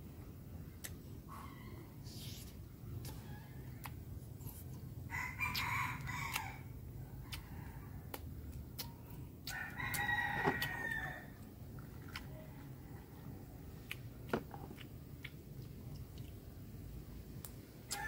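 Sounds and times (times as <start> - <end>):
rooster crowing: 5.1 - 6.7, 9.5 - 11.4.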